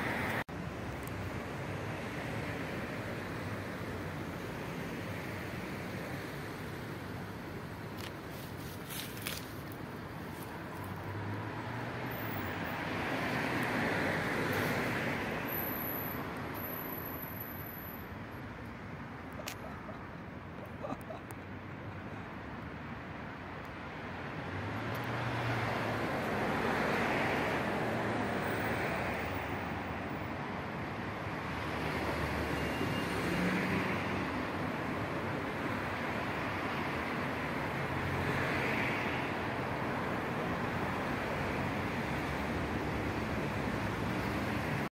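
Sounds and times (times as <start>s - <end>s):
distant road traffic: 0.0s - 44.9s
low even outdoor rush: 0.0s - 44.9s.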